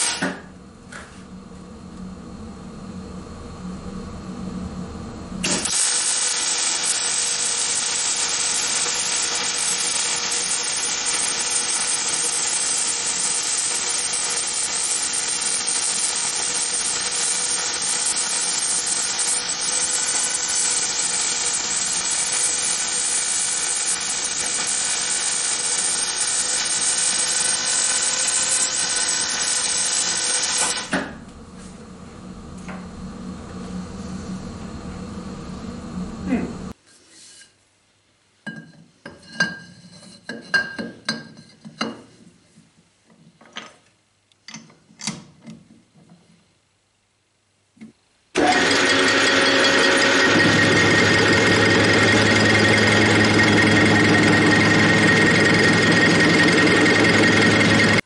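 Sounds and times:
welding arc crackling hiss: 0.0 - 0.4, 5.4 - 31.0.

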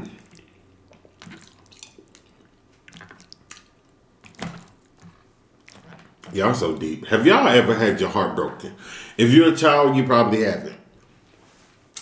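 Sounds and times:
wet chewing sounds: 0.0 - 6.3.

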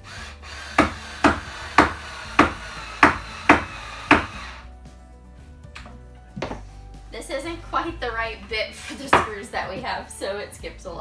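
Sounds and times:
soft background music: 0.0 - 11.0
sharp knocks on wood: 5.8 - 6.7.

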